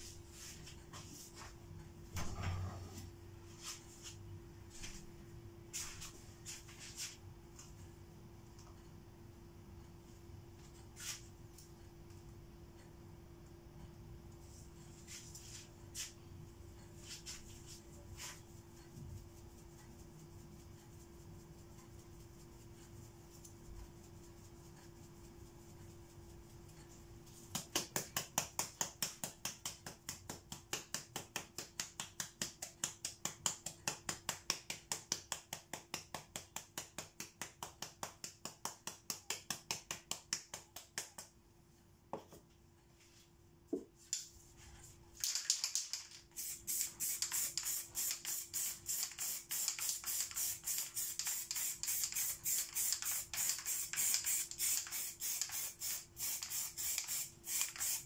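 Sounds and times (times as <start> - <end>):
spray can ball rattling: 45.2 - 58.0
spray paint hissing: 45.3 - 58.0.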